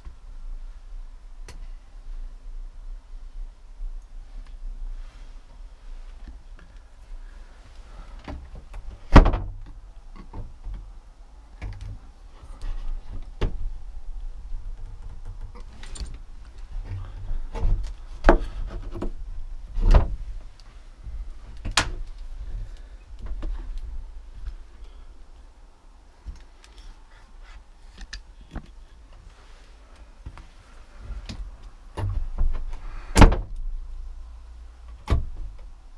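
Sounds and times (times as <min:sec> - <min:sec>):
knocks bumps and thuds of handling: 0:08.2 - 0:10.8, 0:14.7 - 0:20.6, 0:31.1 - 0:33.6.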